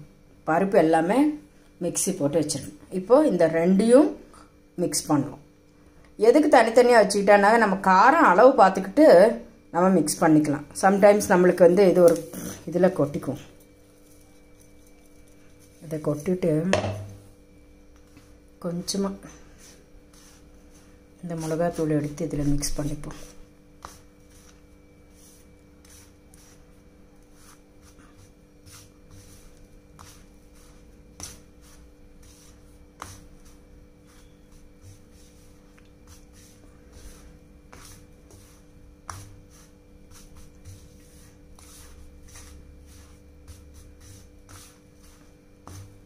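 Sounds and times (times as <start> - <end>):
fingers stirring powder: 10.9 - 16.4, 17.9 - 46.0.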